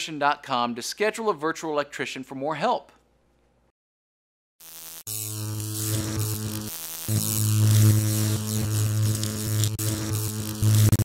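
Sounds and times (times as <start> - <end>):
crackling static: 4.6 - 11.0
electric hum and buzz: 4.6 - 11.0.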